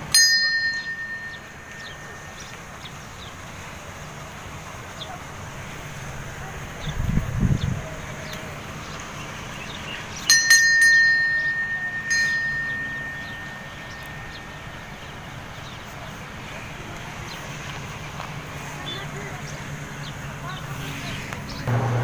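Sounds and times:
metal temple bell ringing: 0:00.0 - 0:03.0, 0:10.2 - 0:15.8.

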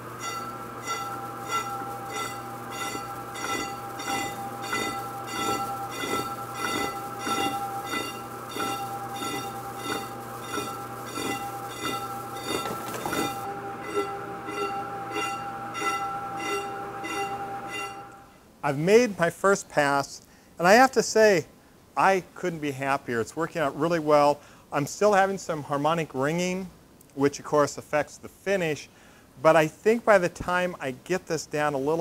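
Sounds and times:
lathe cutting metal pulsing: 0:00.0 - 0:18.2
high harmonic ringing: 0:00.0 - 0:18.4.

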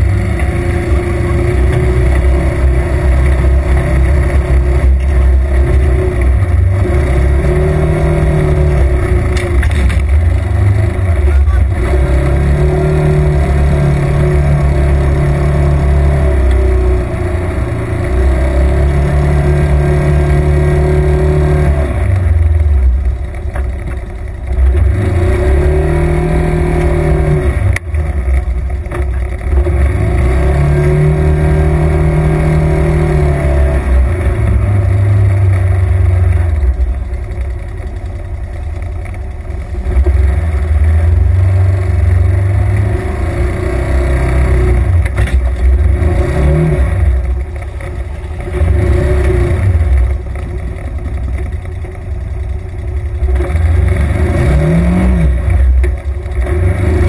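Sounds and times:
utility vehicle engine revving: 0:00.0 - 0:57.0.

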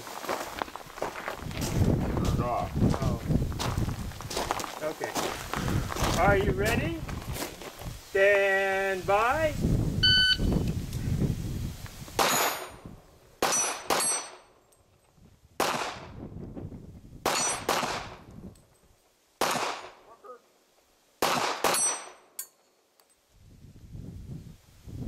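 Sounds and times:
handgun shots: 0:12.2 - 0:12.7, 0:13.4 - 0:14.4, 0:15.6 - 0:16.1, 0:17.3 - 0:18.2, 0:19.4 - 0:20.0, 0:21.2 - 0:22.2
steel target plate ringing: 0:13.4 - 0:14.5.

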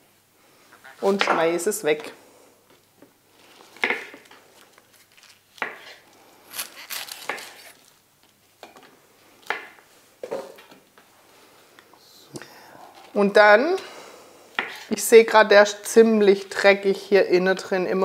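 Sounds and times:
knife chopping vegetables: 0:06.7 - 0:07.8.

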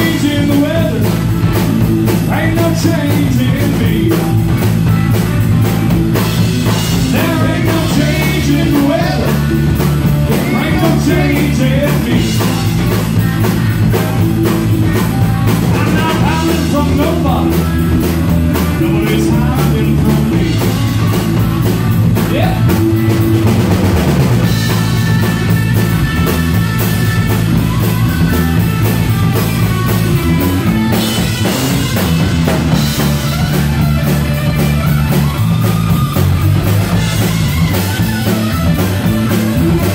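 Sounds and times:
man singing: 0:00.0 - 0:04.4, 0:06.7 - 0:13.0, 0:15.5 - 0:21.2, 0:22.1 - 0:23.0
rock band playing: 0:00.0 - 0:39.9.

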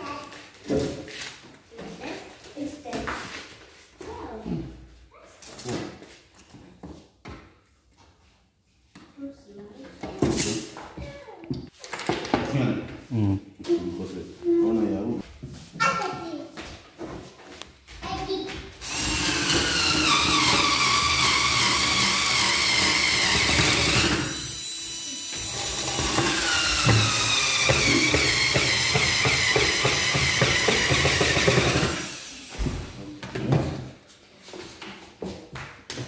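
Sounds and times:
electric screwdriver whine: 0:18.8 - 0:32.6.

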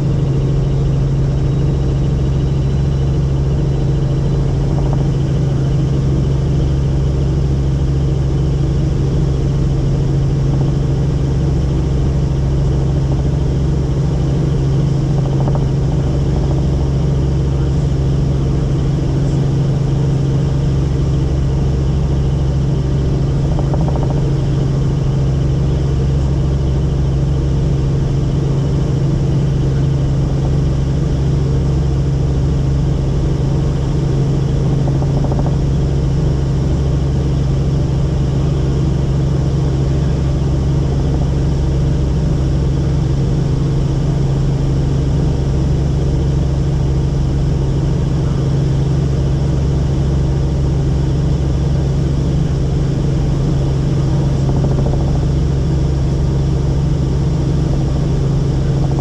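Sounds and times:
helicopter rotor and engine drone: 0:00.0 - 0:59.0.

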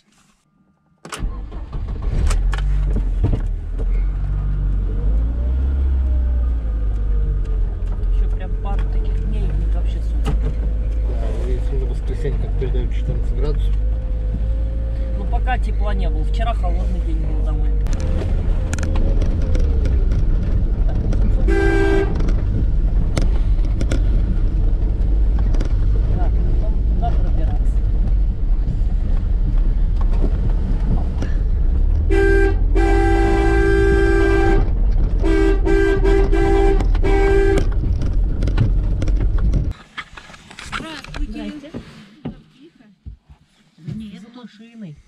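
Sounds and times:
van engine running: 0:01.2 - 0:39.8
body knocks and rattles: 0:02.6 - 0:04.4, 0:07.4 - 0:11.1, 0:17.8 - 0:32.1, 0:34.6 - 0:44.3
short horn toot: 0:21.4 - 0:22.2, 0:32.1 - 0:37.7.

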